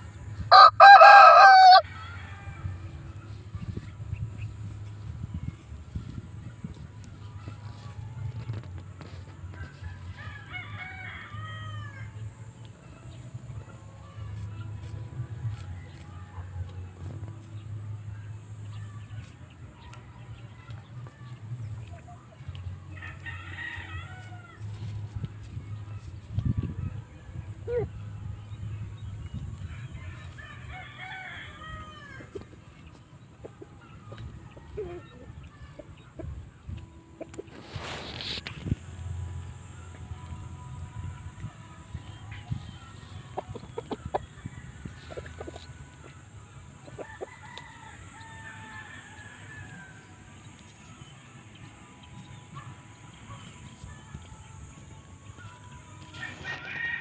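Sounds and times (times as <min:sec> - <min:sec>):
rooster crowing: 0:00.5 - 0:02.8, 0:56.1 - 0:57.0
chicken clucking: 0:41.6 - 0:47.7.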